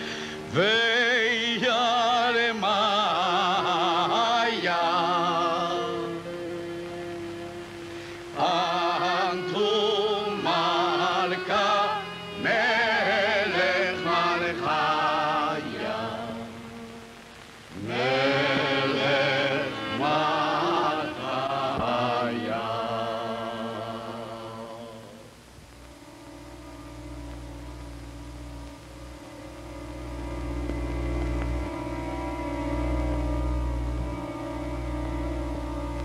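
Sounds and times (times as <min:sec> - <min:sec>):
solo voice singing a chant: 0:00.0 - 0:17.0, 0:17.8 - 0:25.3
low sustained accompaniment: 0:00.0 - 0:36.0.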